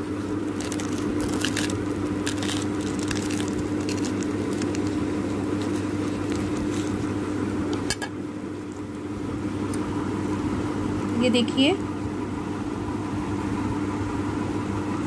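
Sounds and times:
knife crunching through crust: 0.0 - 7.2
steady low hum: 0.0 - 15.0.

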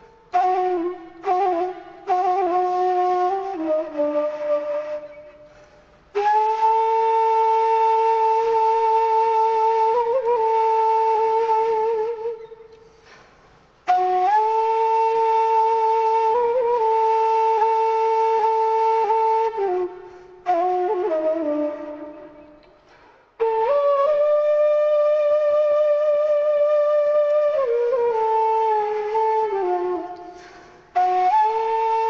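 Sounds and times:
breathy wind instrument: 4.8 - 6.6, 12.1 - 13.9, 19.5 - 23.6, 27.8 - 31.9.

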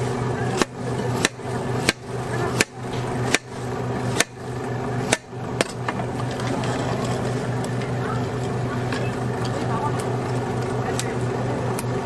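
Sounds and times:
steady low hum: 0.0 - 12.0
knife chopping on cutting board: 0.5 - 3.5, 4.1 - 4.4.

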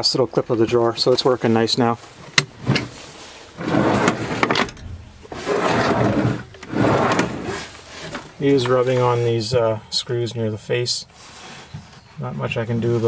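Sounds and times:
drawer sliding on runners: 3.6 - 8.3.

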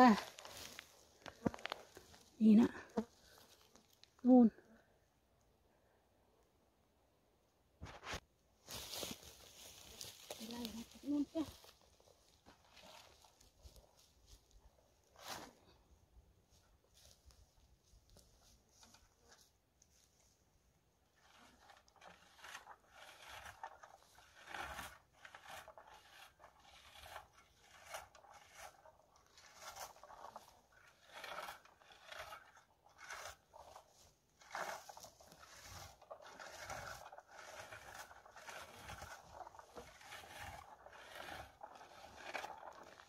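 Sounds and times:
berry picker rustling through bushes: 0.0 - 4.2, 8.6 - 15.7, 21.1 - 43.0.

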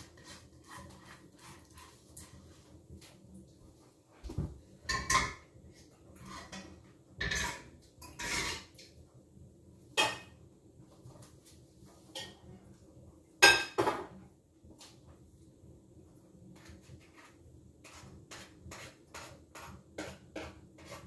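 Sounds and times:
kitchenware clattering: 4.8 - 8.9, 9.9 - 10.4, 12.0 - 12.5, 13.4 - 14.2.

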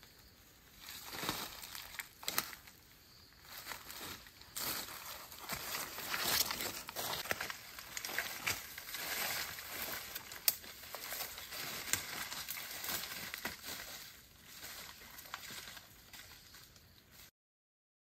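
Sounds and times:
footsteps crunching through dry leaves: 0.6 - 17.3
twigs snapping: 1.1 - 2.7, 4.6 - 13.8.

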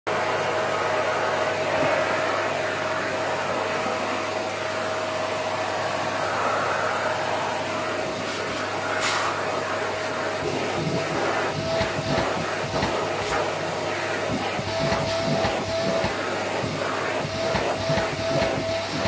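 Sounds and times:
vacuum cleaner running: 0.1 - 19.0.

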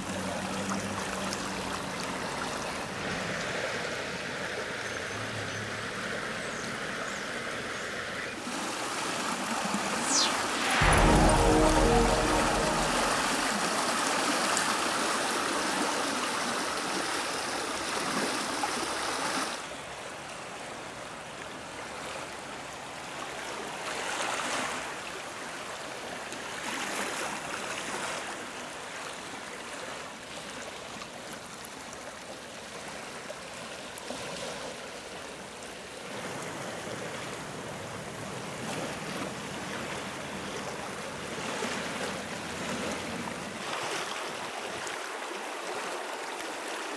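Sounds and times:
fast-flowing river rushing: 31.4 - 46.9.

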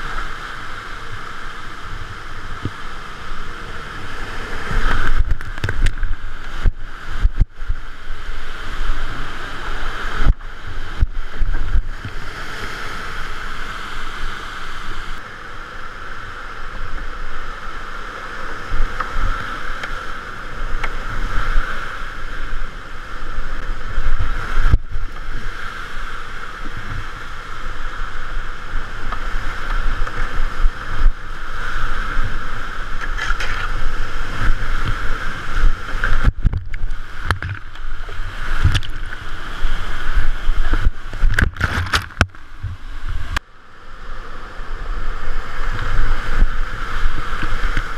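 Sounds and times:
whitewater rapids rushing: 0.0 - 47.9
water thumping against kayak hull: 35.9 - 39.3, 40.5 - 43.4.

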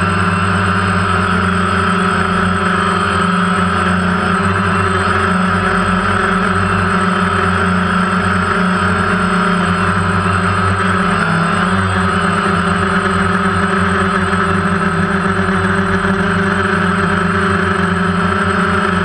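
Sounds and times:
drone propellers buzzing: 0.0 - 19.0.

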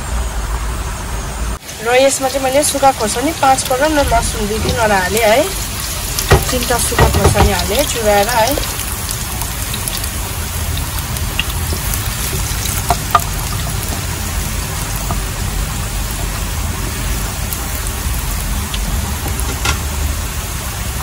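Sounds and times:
rain hissing: 0.0 - 21.0
food sizzling in oil: 1.6 - 21.0
wooden spatula tapping pan: 6.2 - 8.5, 11.4 - 15.4.

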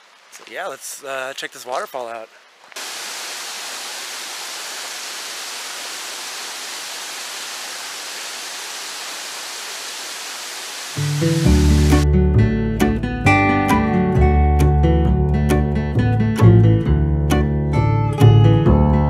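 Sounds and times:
waterfall roaring: 2.8 - 12.0
acoustic guitar music: 11.0 - 19.0.

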